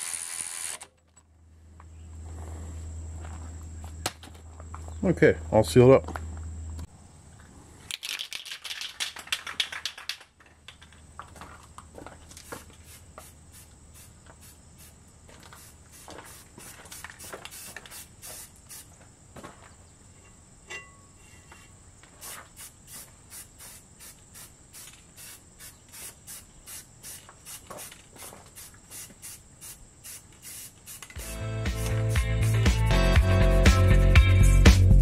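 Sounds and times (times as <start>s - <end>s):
spray paint can hissing: 12.4s - 18.9s, 22.2s - 32.7s.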